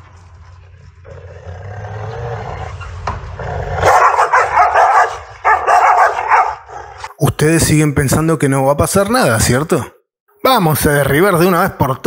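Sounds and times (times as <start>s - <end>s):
dogs snarling and barking: 0.9s - 7.1s.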